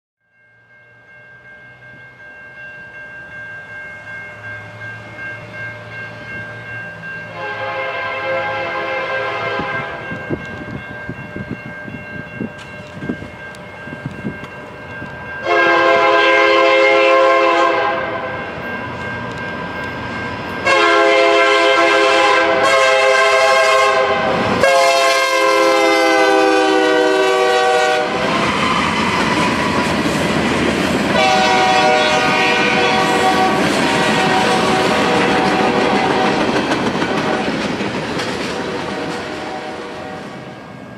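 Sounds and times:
rumble of passing rail cars: 0.3 - 40.9
train air horn blasts: 7.3 - 10.1, 15.4 - 18.4, 20.6 - 28.9, 31.1 - 36.4, 38.5 - 40.6
wheels clattering on rail joints: 28.3 - 39.6.

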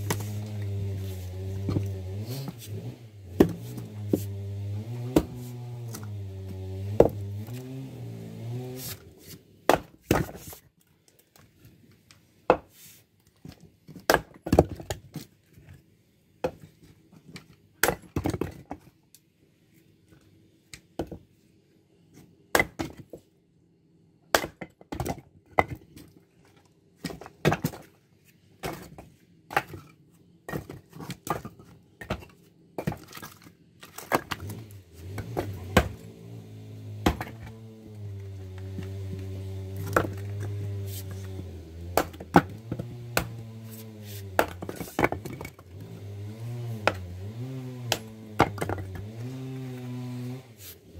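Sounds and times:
axe splitting firewood: 0.0 - 10.6, 13.4 - 15.3, 17.4 - 18.8, 22.5 - 23.2, 24.3 - 26.2, 27.0 - 28.0, 28.6 - 50.9.

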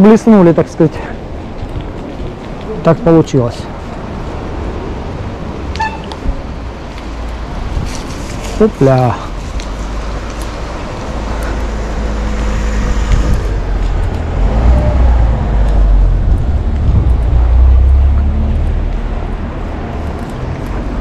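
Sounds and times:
wind buffeting microphone: 1.2 - 2.8, 3.7 - 21.0.

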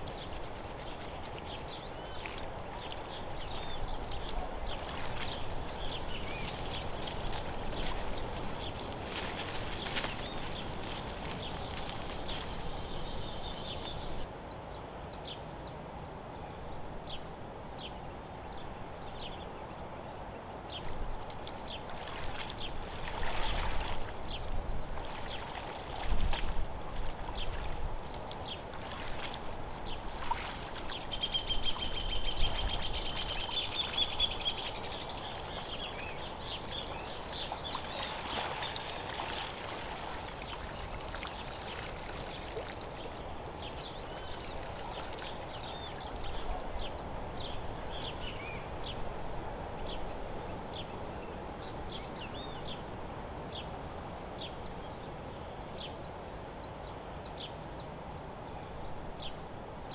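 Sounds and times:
water splashing and dripping: 0.0 - 13.2, 21.2 - 36.0, 36.8 - 46.7
outdoor background noise: 0.0 - 59.9.

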